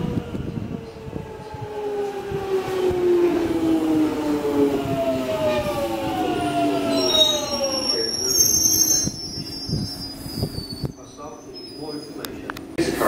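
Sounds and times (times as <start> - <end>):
electric train traction whine: 0.0 - 13.0
high brake squeal: 6.8 - 12.3.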